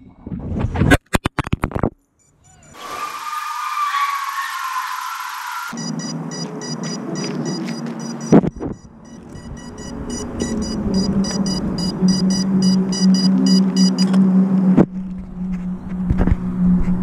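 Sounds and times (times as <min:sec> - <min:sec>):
rapid high-pitched electronic beeping: 0:04.1 - 0:14.1
steady low hum: 0:08.2 - 0:17.0.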